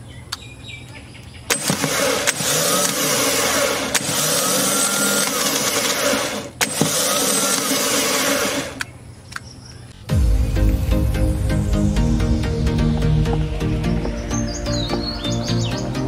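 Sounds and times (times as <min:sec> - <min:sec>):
starter motor whirring: 0:01.5 - 0:09.0
starter motor click: 0:01.5 - 0:09.5.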